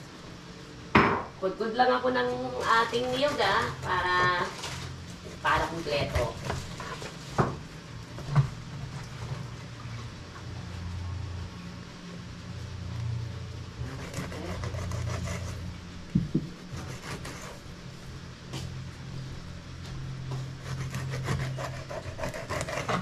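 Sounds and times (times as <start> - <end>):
steady low hum: 0.0 - 23.0
coconut grating rasps: 2.3 - 7.2, 13.8 - 15.8, 16.6 - 17.7, 20.3 - 23.0.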